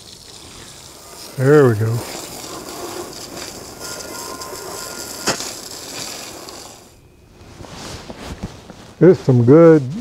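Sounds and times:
hose water spraying on metal: 0.0 - 7.0.

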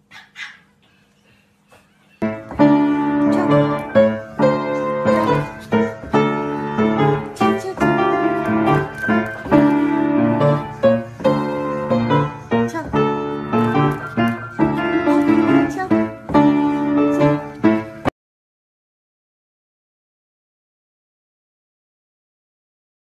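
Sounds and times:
piano playing: 2.2 - 18.1.

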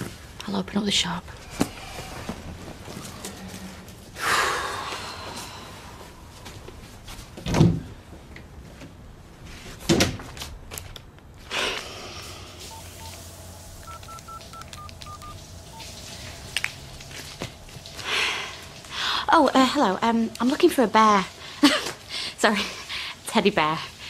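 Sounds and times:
phone keypad beeps: 12.7 - 13.2, 13.8 - 15.9.

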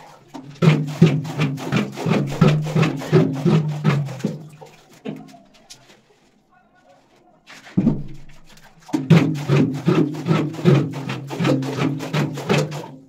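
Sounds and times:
plastic pail knocking on concrete: 0.0 - 5.5, 7.6 - 13.0.

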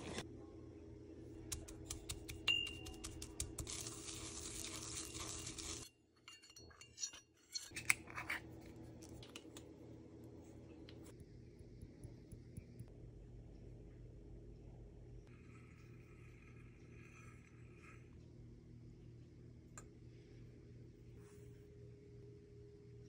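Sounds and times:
flakes clicking in a ceramic mortar: 1.5 - 5.9
faint steady hum: 7.7 - 23.0.

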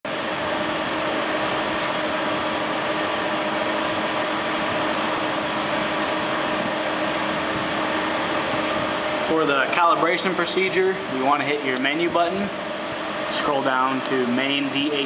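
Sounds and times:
mechanical whir and hum: 0.1 - 15.0.

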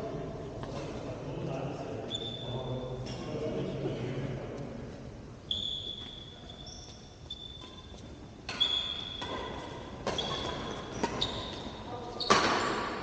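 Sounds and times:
shoes squeaking on floor: 2.1 - 2.7, 5.4 - 12.9
racket hitting shuttlecock: 8.4 - 11.7, 12.3 - 13.0.

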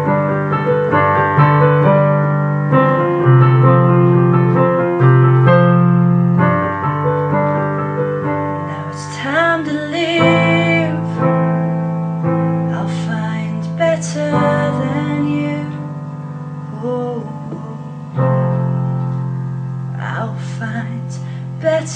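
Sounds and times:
piano chords: 0.0 - 21.9
person singing: 8.5 - 11.5, 12.7 - 18.5, 19.9 - 21.9.

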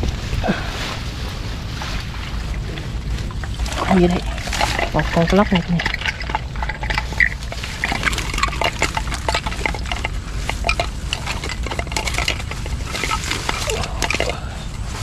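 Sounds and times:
steady low rumble: 0.0 - 15.0
fish trap clicking and clattering: 3.7 - 14.5.

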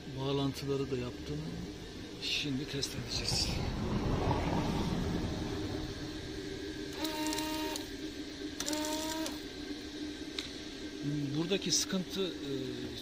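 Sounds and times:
steady low hum: 0.0 - 13.0
electric water pump whining: 3.0 - 13.0.

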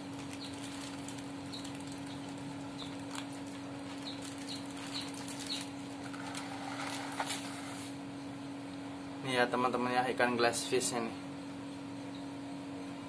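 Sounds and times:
wet plastic bag clicking and rustling: 0.0 - 7.5
steady low hum: 0.0 - 13.0.

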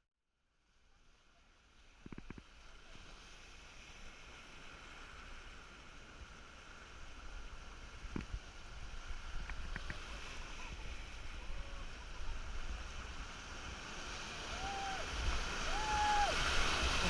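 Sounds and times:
surf breaking on rocks: 7.6 - 17.0.

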